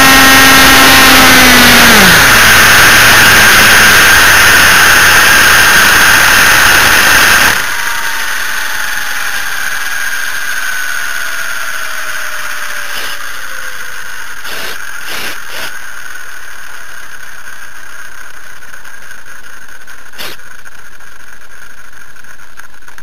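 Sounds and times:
model helicopter motor whine: 0:00.0 - 0:23.0
steady hiss: 0:12.9 - 0:22.6.

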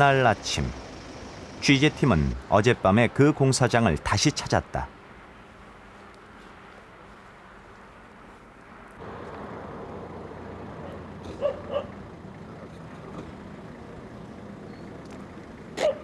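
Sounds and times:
outdoor background noise: 0:00.0 - 0:16.0
dog barks: 0:10.8 - 0:12.0, 0:15.8 - 0:16.0.

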